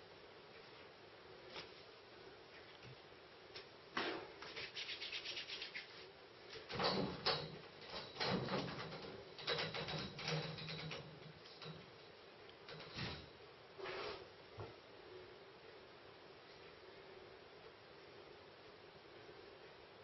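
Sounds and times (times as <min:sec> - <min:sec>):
metal scaffolding creaking and rattling: 0:06.7 - 0:11.9, 0:12.7 - 0:13.3.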